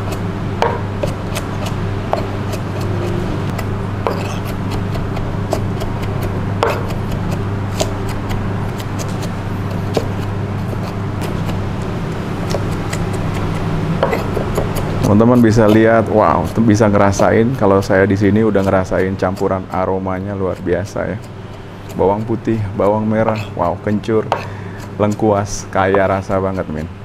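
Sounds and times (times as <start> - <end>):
steady low hum: 0.0 - 27.0
cleaver chopping on wooden board: 0.1 - 11.6, 12.5 - 15.1, 22.9 - 23.6, 24.2 - 25.2.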